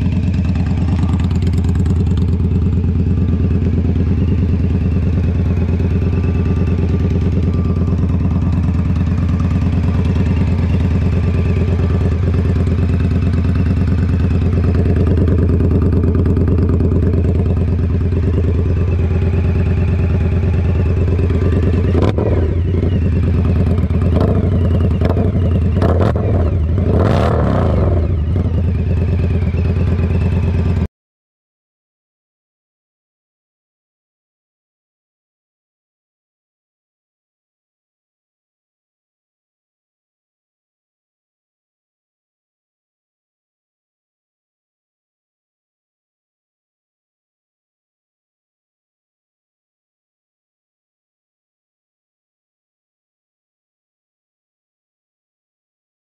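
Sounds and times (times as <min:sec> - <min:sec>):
motorcycle engine idling: 0:00.0 - 0:30.9.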